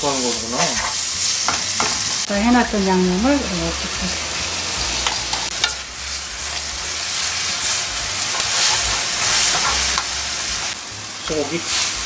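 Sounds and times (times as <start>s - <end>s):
wooden spatula scraping wok: 0.0s - 2.3s, 3.6s - 12.0s
noodles sizzling in a wok: 0.0s - 12.0s.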